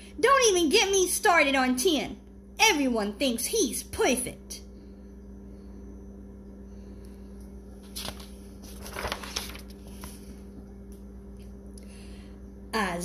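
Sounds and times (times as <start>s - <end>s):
low hum: 3.9s - 13.0s
book page turning: 7.8s - 11.1s.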